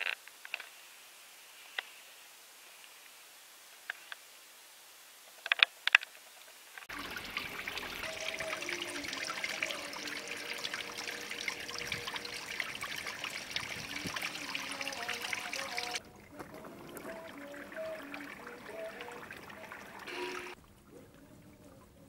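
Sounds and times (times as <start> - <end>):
underwater crackling and trickling: 6.7 - 22.0.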